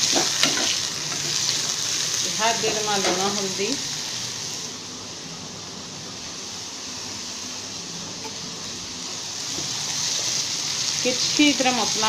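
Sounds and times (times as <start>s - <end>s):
food frying in a pan: 0.0s - 12.0s.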